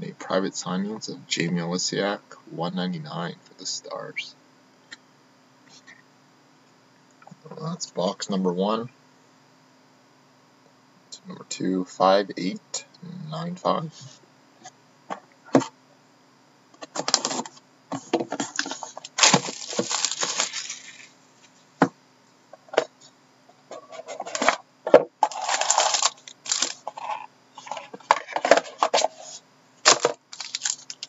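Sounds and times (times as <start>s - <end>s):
plastic and cardboard rustling: 16.8s - 21.1s, 23.7s - 31.0s.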